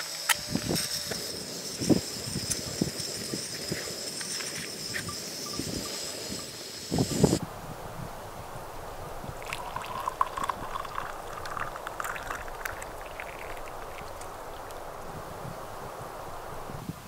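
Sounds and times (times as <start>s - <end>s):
water pouring into cup: 9.4s - 15.1s.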